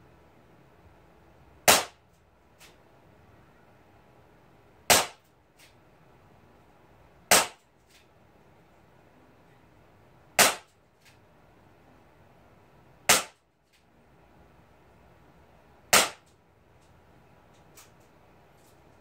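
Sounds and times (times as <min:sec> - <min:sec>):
bb revolver shots: 0:01.6 - 0:02.0, 0:04.9 - 0:05.2, 0:07.3 - 0:07.6, 0:10.4 - 0:10.7, 0:13.1 - 0:13.4, 0:15.9 - 0:16.3.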